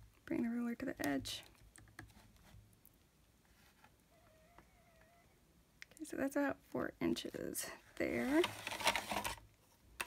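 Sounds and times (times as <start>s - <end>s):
ruler and paper rustling: 7.9s - 9.8s.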